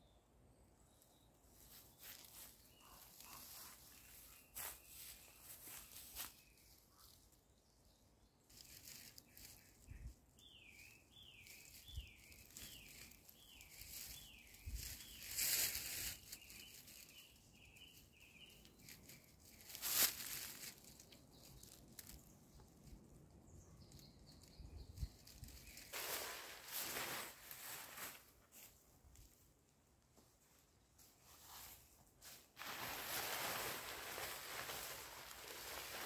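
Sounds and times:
songbird singing: 0:00.0 - 0:26.9.

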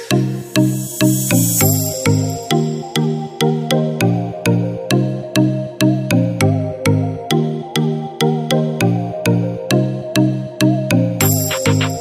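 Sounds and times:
electronic music with clicking beat: 0:00.0 - 0:04.0, 0:11.2 - 0:12.0.

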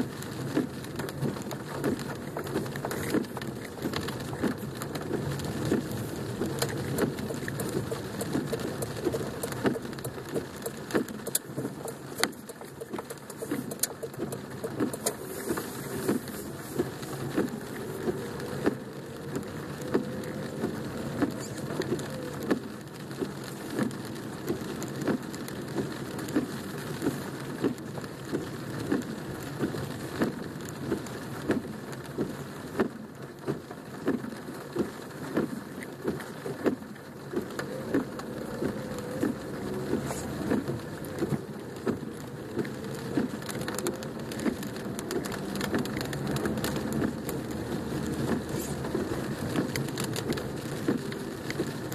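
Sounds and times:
rain on car roof: 0:00.0 - 0:51.9.

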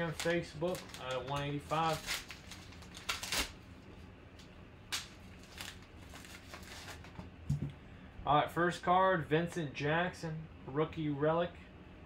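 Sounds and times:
cards being handled: 0:00.0 - 0:03.6, 0:04.3 - 0:07.7
wrapper tearing and crinkling: 0:00.0 - 0:03.6, 0:04.9 - 0:07.1.

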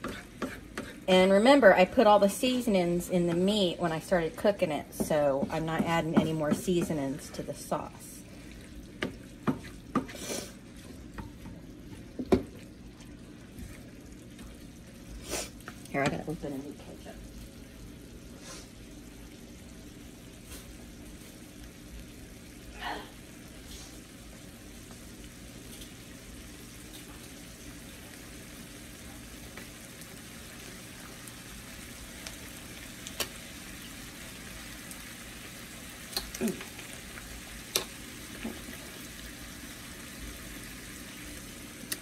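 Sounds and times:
meat sauce sizzling in a frying pan: 0:00.0 - 0:42.0.

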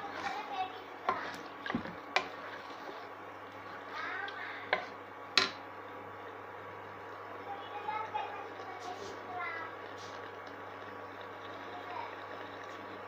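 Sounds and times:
spatula stirring thick sauce: 0:00.1 - 0:04.0.

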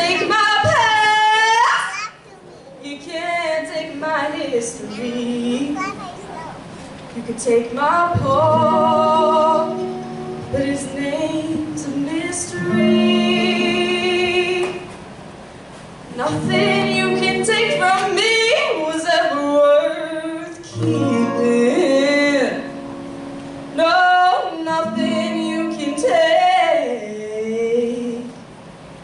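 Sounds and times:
woman singing into a microphone: 0:00.0 - 0:01.9, 0:02.8 - 0:05.8, 0:07.1 - 0:15.0, 0:16.1 - 0:23.0, 0:23.6 - 0:28.5.

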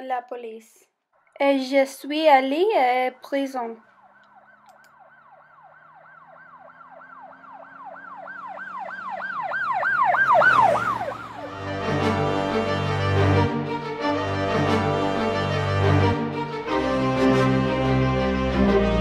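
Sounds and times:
police siren yelping: 0:03.8 - 0:12.2
music: 0:11.5 - 0:19.0.

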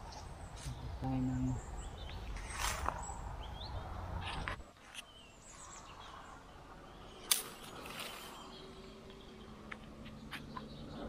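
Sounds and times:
small birds chirping: 0:00.0 - 0:11.0
leafy branches rustling: 0:02.1 - 0:10.1
branch snapping: 0:07.2 - 0:08.3.

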